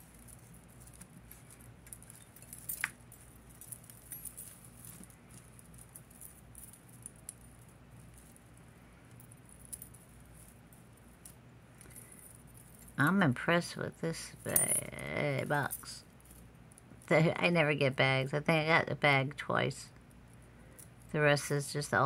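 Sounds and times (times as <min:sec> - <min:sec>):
bead necklaces and chains clinking: 0:00.0 - 0:13.1, 0:14.1 - 0:17.4
faint low hum: 0:00.0 - 0:22.0.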